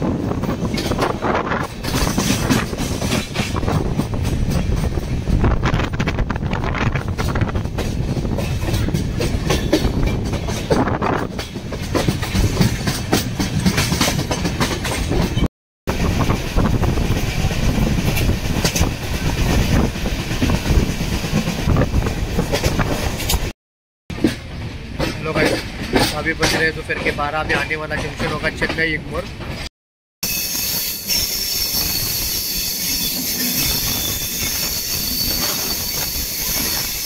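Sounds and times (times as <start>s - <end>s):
train rumbling on track: 0.0s - 37.0s
wheels clacking over rail joints: 0.1s - 15.5s, 16.2s - 23.5s, 24.1s - 29.7s.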